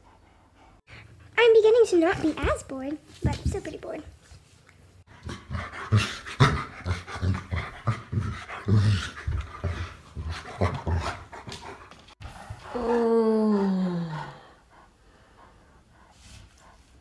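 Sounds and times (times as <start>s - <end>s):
dog panting: 0.0s - 2.5s, 5.1s - 13.0s, 14.4s - 17.0s.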